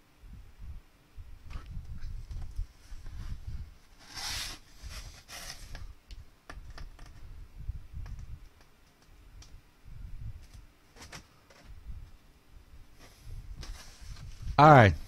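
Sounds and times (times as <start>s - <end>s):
cardboard rustling: 13.0s - 14.3s.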